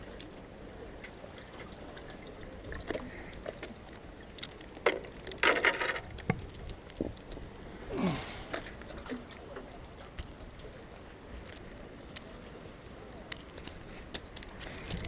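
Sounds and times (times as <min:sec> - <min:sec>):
small waves lapping against rocks: 0:00.0 - 0:15.0.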